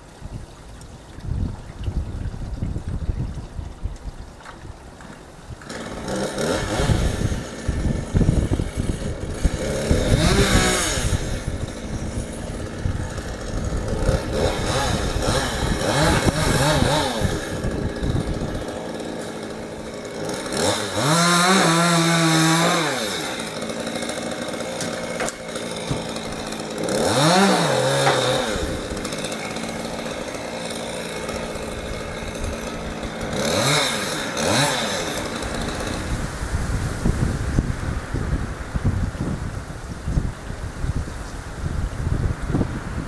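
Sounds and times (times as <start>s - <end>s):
chainsaw idling and revving: 5.5s - 39.4s.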